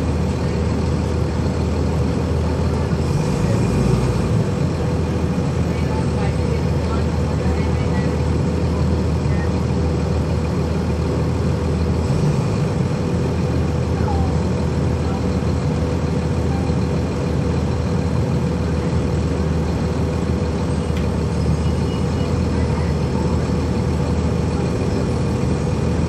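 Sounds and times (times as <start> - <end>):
bus diesel engine humming: 0.0 - 26.0
road and traffic noise: 0.0 - 26.0.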